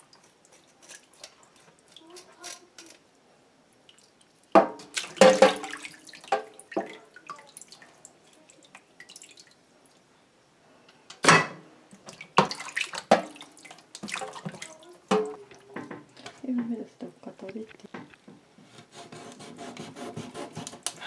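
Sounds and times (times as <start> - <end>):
water splashing in plastic bowl: 3.9 - 9.6, 11.9 - 15.8.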